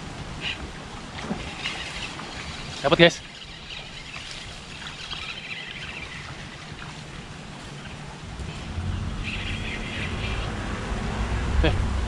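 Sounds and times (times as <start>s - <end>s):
fishing reel whirring: 1.4s - 7.9s
wind buffeting microphone: 3.7s - 12.0s.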